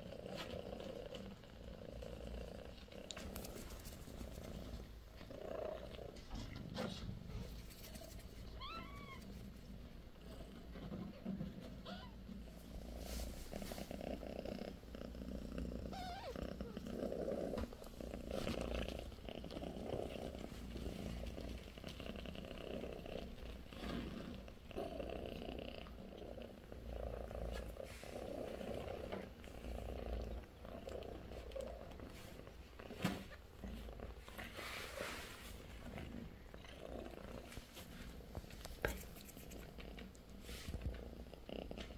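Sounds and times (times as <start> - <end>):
cat purring: 0.0 - 41.9.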